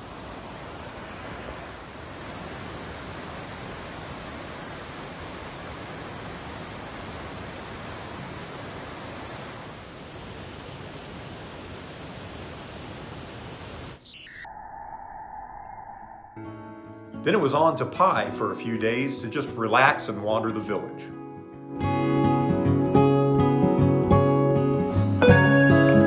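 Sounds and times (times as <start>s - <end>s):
insect chorus buzzing: 0.0s - 15.4s.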